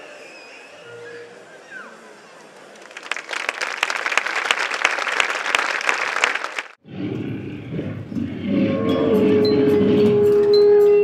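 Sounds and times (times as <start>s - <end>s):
audience applause: 2.7s - 6.8s.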